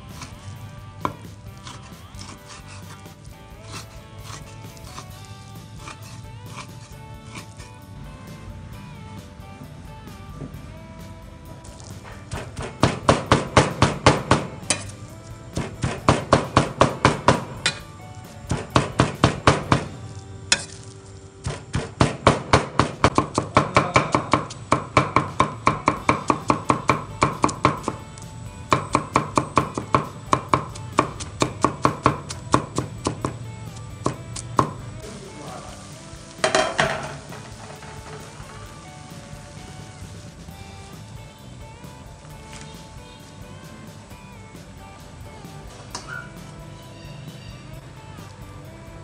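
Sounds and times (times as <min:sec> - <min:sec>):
cleaver chopping on wooden board: 0:21.4 - 0:28.0, 0:28.7 - 0:33.4, 0:34.0 - 0:34.8.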